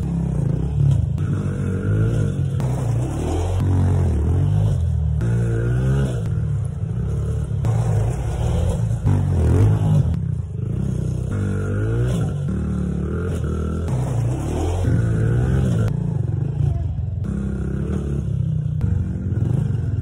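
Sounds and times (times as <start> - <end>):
dirt bike engines revving: 0.0 - 20.0.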